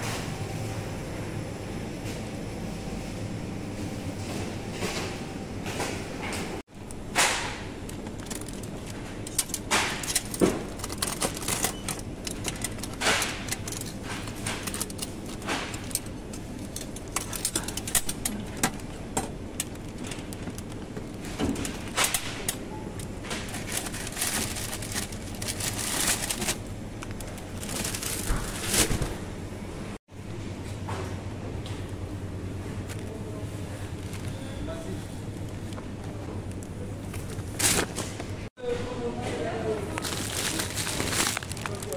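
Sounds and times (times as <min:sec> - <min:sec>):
steady low hum: 0:00.0 - 0:41.9
clatter of goods being handled: 0:04.2 - 0:29.2, 0:32.8 - 0:38.5, 0:39.2 - 0:41.9.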